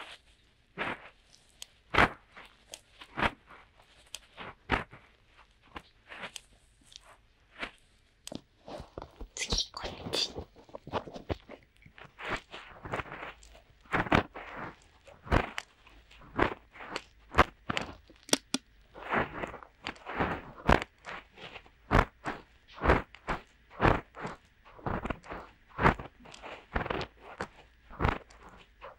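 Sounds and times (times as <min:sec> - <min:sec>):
fingers scratching microphone ears: 0:08.8 - 0:28.9.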